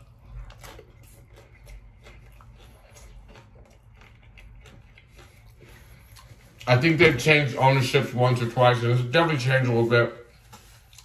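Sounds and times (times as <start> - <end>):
chewing crispy taco shell: 0.0 - 7.3, 10.3 - 11.0.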